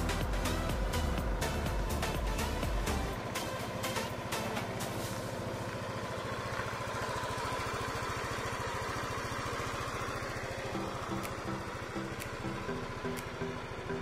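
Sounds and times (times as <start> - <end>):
background music with simple melody: 0.0 - 5.4, 10.6 - 14.0
scooter engine idling: 0.0 - 14.0.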